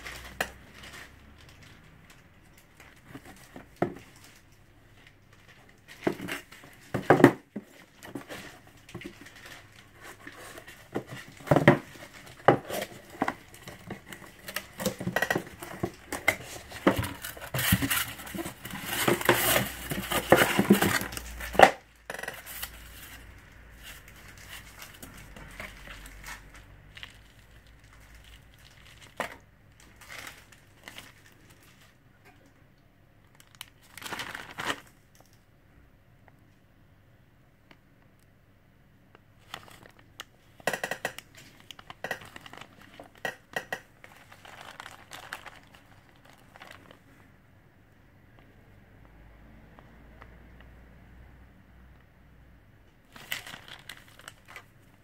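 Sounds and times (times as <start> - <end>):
packaging crinkling and tearing: 0.0 - 32.0, 33.2 - 35.4, 39.4 - 47.1, 53.0 - 55.0.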